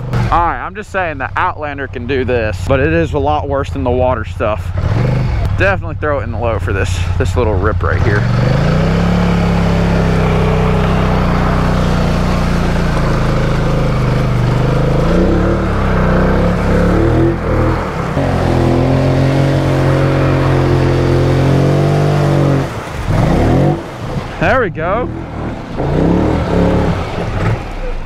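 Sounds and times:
atv engine pulling under load: 7.0 - 28.0.

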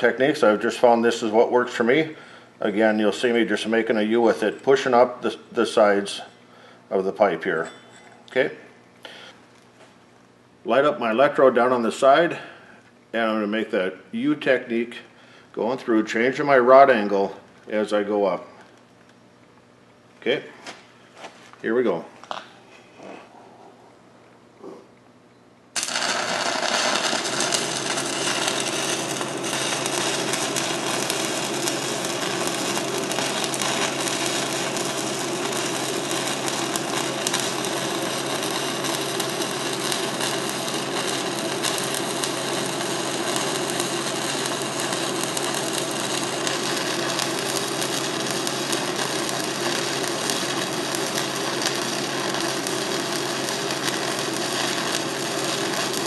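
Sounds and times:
welding arc crackling: 0.0 - 6.2, 25.7 - 56.0.

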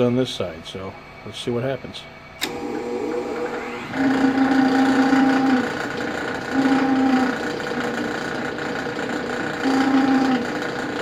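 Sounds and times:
lathe motor humming: 2.4 - 11.0.

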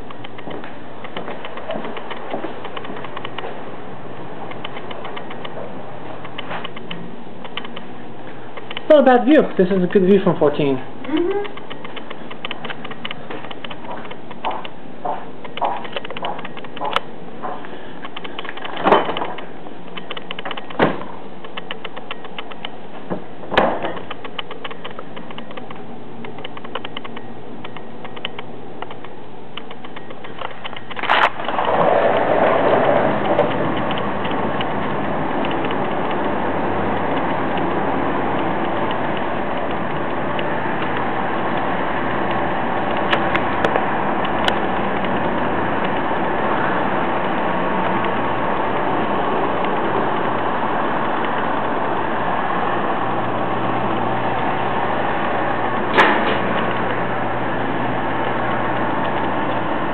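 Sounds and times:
sliding door rattling on track: 30.7 - 59.9.

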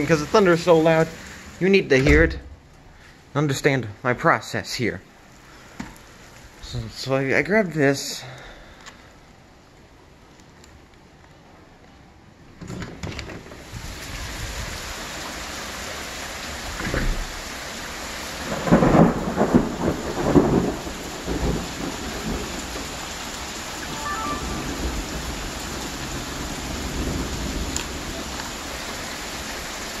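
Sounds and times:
heavy rain falling: 0.0 - 11.6, 13.4 - 30.0
thunder cracking and rumbling: 18.4 - 23.0.

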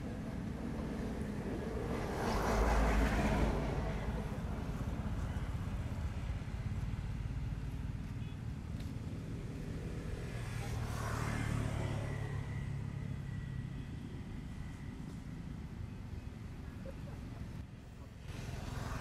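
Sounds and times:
vehicle passing by: 0.0 - 6.8, 9.1 - 15.2, 18.0 - 19.0.

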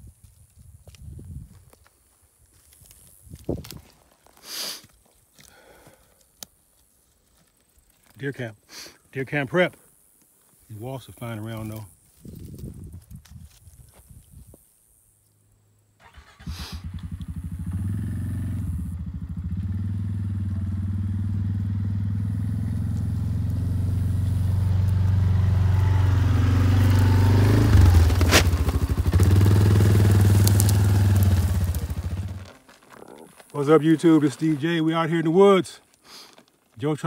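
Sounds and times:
quad engine running: 16.4 - 33.3.

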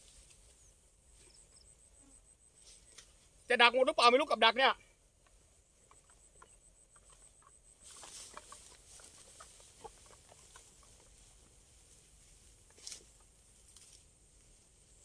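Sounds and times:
rustling of dry grass: 0.0 - 3.6, 4.8 - 15.0.

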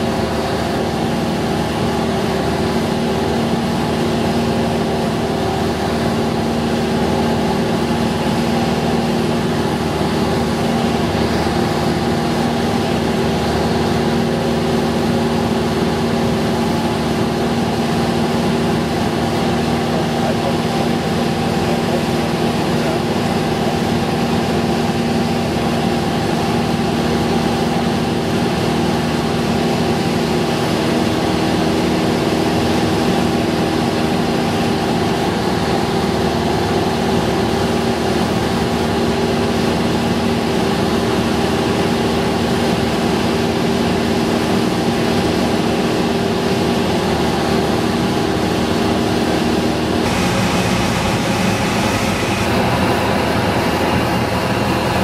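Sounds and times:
propeller plane engine droning: 0.0 - 55.0.

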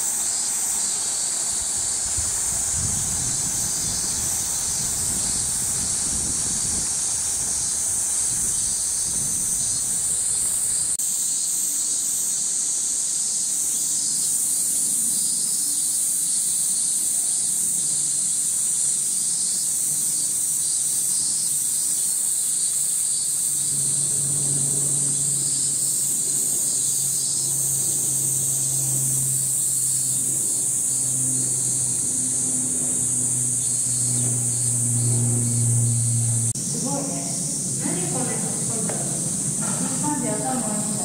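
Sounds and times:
cicadas buzzing: 0.0 - 41.0.

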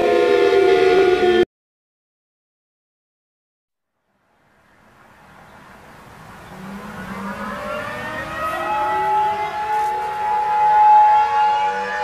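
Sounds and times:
civil defense siren winding up: 0.0 - 1.4, 6.6 - 12.0.

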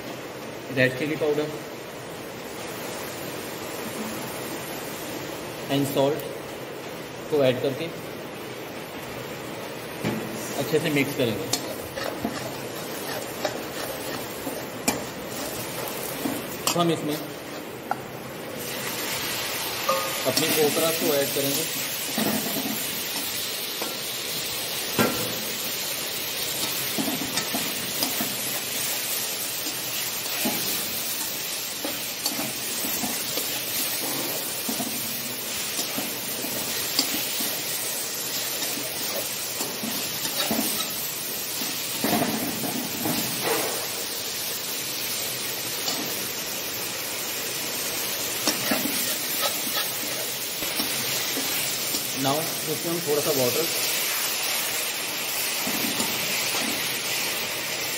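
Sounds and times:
okra sizzling in hot oil: 0.0 - 57.9
metal spoon scraping pan: 11.5 - 17.7, 38.6 - 41.0, 48.4 - 52.1.

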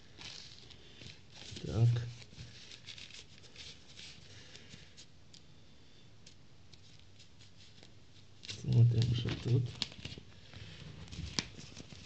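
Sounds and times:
plastic parcel crinkling: 7.6 - 10.3.

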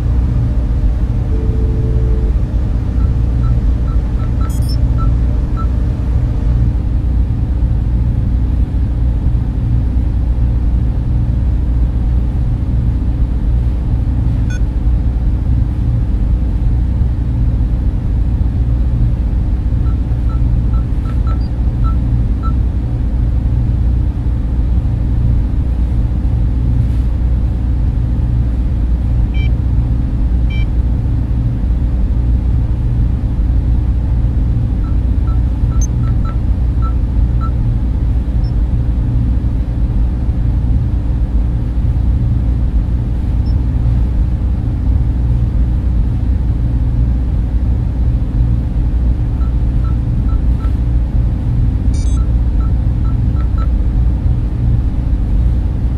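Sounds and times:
steady low rumble: 0.0 - 55.9
short electronic beeps: 1.3 - 5.7, 19.8 - 22.6, 34.8 - 37.6, 49.4 - 50.8, 51.9 - 53.7.

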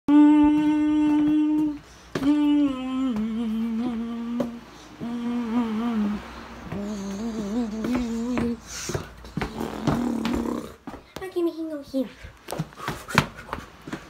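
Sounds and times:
person humming low notes: 0.1 - 8.7, 9.3 - 10.8.

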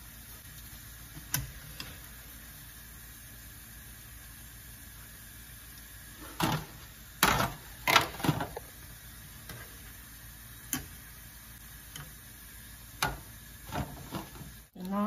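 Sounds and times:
oil sizzling: 0.0 - 15.0.

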